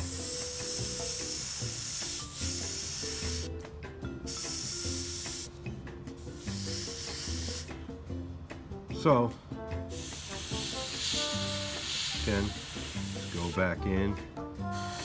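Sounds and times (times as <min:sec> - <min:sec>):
airbrush spraying bursts: 0:00.0 - 0:03.5, 0:04.2 - 0:05.6, 0:06.2 - 0:07.8, 0:09.9 - 0:13.7, 0:14.7 - 0:15.0
faint background music: 0:00.0 - 0:15.0.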